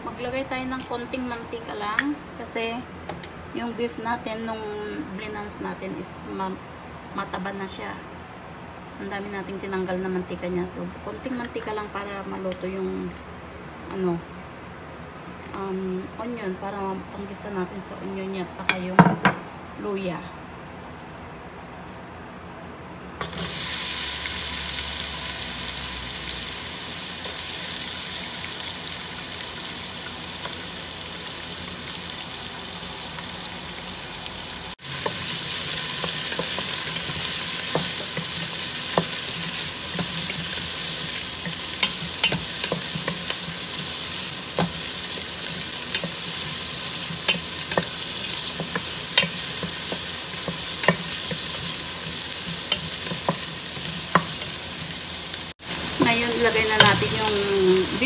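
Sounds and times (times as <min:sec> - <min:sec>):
onion and ginger sizzling in oil: 0:23.2 - 0:58.0
wooden spoon tapping a pot: 0:44.5 - 0:44.9, 0:47.2 - 0:51.7, 0:52.4 - 0:54.6, 0:56.0 - 0:57.5.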